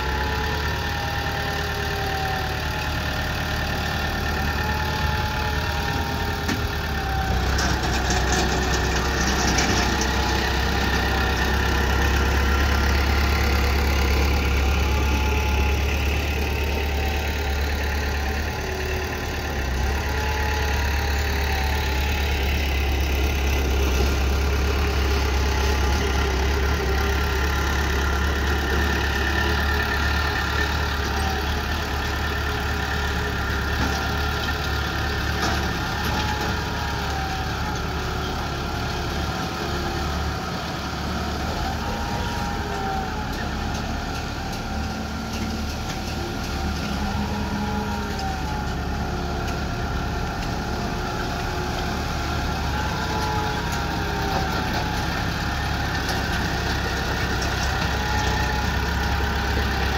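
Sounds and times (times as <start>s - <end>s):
bulldozer diesel engine running: 0.0s - 59.9s.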